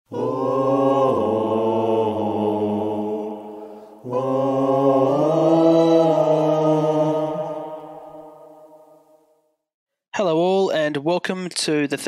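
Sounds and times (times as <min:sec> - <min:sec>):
droning chant-like music: 0:00.1 - 0:09.0.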